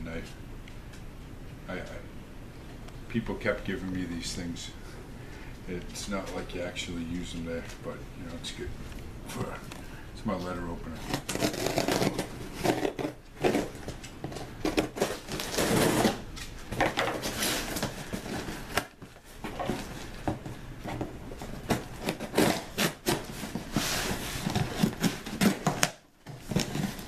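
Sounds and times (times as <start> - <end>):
cardboard scraping and tearing: 10.9 - 20.2, 20.9 - 27.0
knife slitting packing tape: 11.0 - 13.8, 14.6 - 16.2, 21.6 - 27.0.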